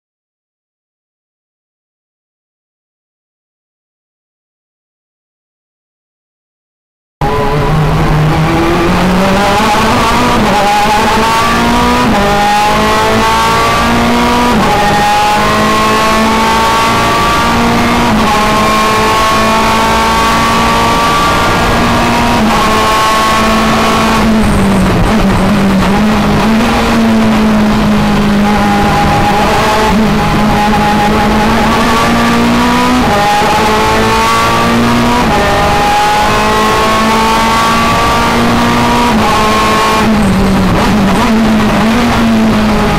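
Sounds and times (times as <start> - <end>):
race car engine revving: 7.2 - 42.9.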